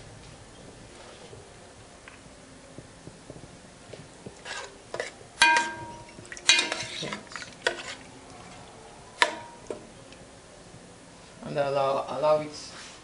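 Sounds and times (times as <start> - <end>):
metal spoon scraping a pot: 4.4 - 8.1
spoon clanking on metal pot: 4.5 - 8.0, 9.2 - 9.8.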